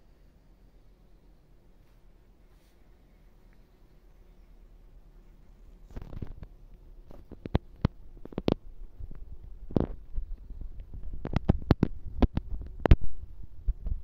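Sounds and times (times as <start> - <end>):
sharp clicks and knocks: 5.9 - 13.1.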